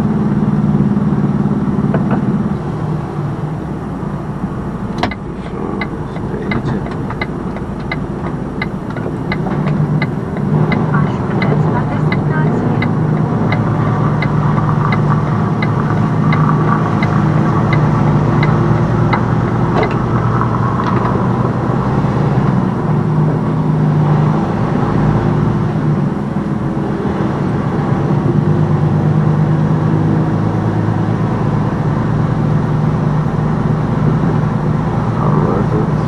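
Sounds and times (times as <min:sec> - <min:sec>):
diesel engine running: 0:00.0 - 0:36.0
light regular ticking: 0:05.0 - 0:21.1.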